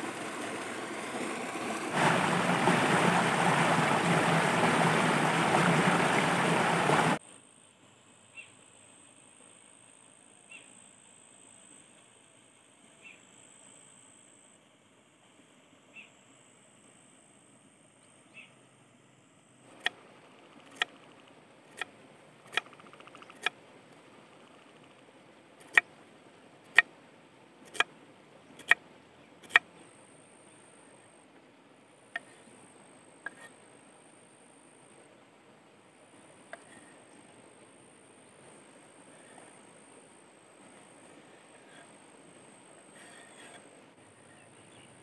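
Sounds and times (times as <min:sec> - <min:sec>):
faint insect chirps: 0:07.2 - 0:19.7, 0:28.4 - 0:45.0.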